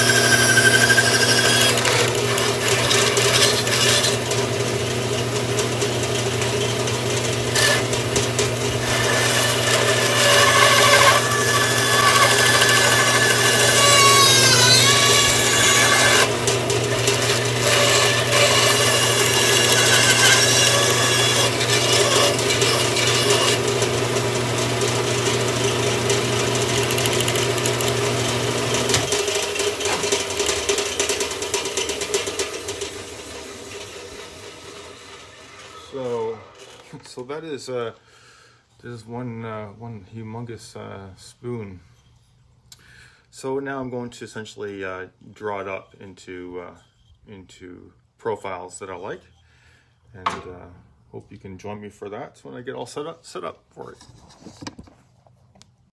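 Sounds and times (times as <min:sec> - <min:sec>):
bandsaw motor hum: 0:00.0 - 0:36.9
bandsaw blade cutting wood: 0:00.0 - 0:37.0.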